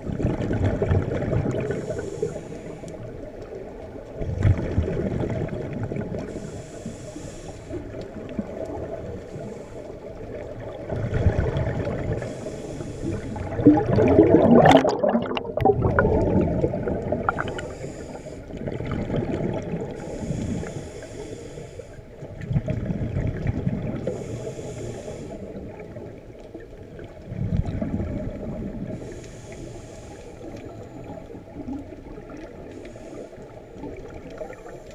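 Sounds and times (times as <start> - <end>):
regulator hiss on inhalation: 1.7 - 3.0, 6.3 - 7.9, 12.2 - 13.6, 17.3 - 18.5, 20.0 - 22.0, 24.0 - 25.6, 29.0 - 30.9, 32.7 - 33.5
bubbling rush on exhalation: 10.8 - 12.3, 13.0 - 20.3.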